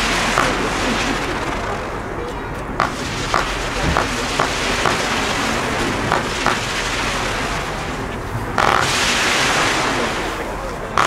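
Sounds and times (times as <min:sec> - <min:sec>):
fireworks pops: 0:00.0 - 0:01.4, 0:02.2 - 0:07.0
fireworks crackling burst: 0:00.0 - 0:10.4
fireworks hissing rush: 0:00.0 - 0:11.0.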